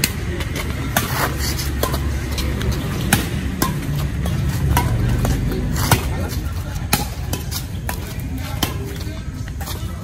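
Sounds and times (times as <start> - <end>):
city traffic rumble: 0.0 - 10.0
rackets striking shuttlecock: 0.0 - 10.0.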